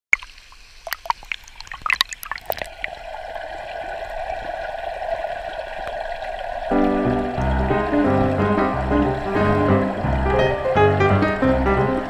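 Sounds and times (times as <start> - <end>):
bubble pops and clicks: 0.1 - 2.8
muffled underwater hiss: 2.4 - 12.0.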